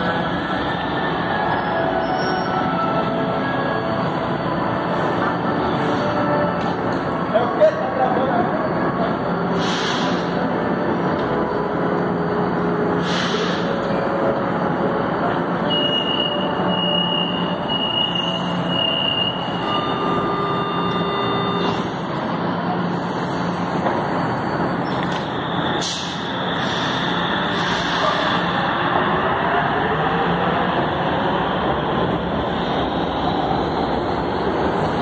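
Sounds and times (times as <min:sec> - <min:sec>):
train rumble and hum: 0:00.0 - 0:35.0
high wheel squeal: 0:00.6 - 0:04.1, 0:15.6 - 0:22.1, 0:24.0 - 0:28.4.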